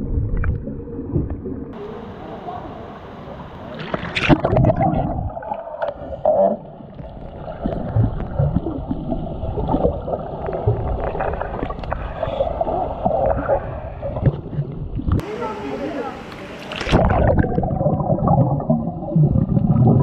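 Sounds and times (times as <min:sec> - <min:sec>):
low underwater rumbling: 0:00.0 - 0:15.3, 0:16.8 - 0:20.0
underwater gurgling: 0:00.0 - 0:20.0
splash going underwater: 0:03.7 - 0:15.2, 0:16.7 - 0:20.0.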